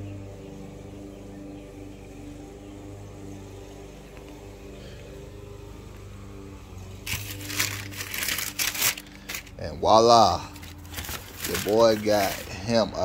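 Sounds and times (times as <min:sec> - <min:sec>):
low hum: 0:00.0 - 0:13.0
tissue paper crinkling: 0:07.1 - 0:09.5, 0:10.5 - 0:12.7.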